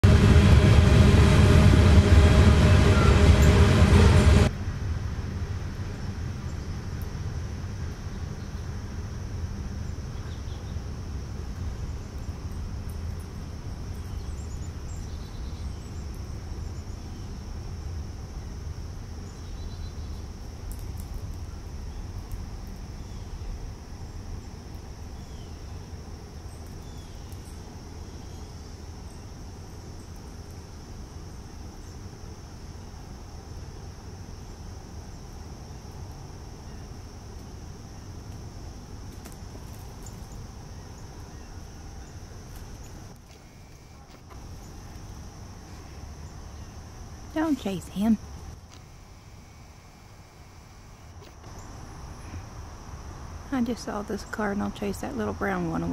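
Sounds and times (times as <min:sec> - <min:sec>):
loud dense tonal sound: 0:00.0 - 0:04.8
low rumble: 0:00.0 - 0:06.3
high insect drone: 0:05.6 - 0:55.9.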